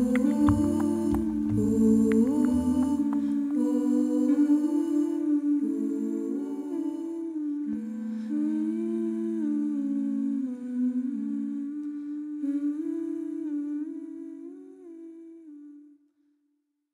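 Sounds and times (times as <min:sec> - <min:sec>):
woman humming a slow melody: 0:00.0 - 0:16.0.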